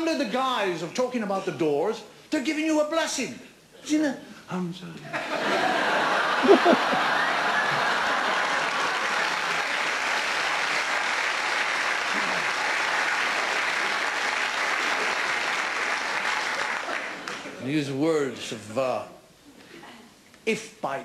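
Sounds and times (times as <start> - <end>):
audience applauding: 5.5 - 17.6.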